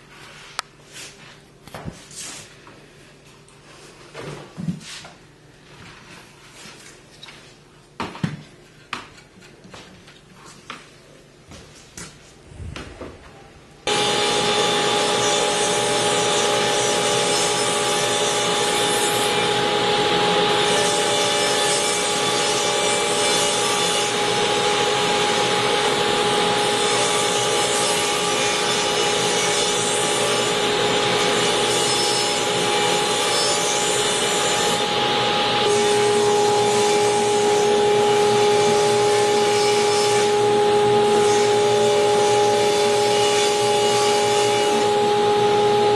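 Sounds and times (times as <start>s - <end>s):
table saw whining: 13.9s - 45.9s.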